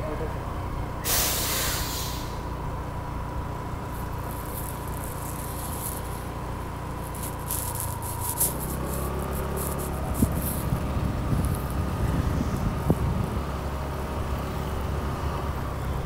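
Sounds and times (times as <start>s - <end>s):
vehicle rumble from on board: 0.0s - 16.0s
passing hiss: 1.0s - 2.6s
crackly buffeting: 1.8s - 16.0s.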